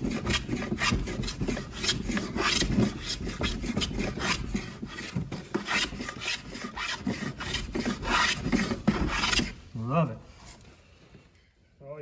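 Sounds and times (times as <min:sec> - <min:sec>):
hand plane shaving wood: 0:00.0 - 0:09.6.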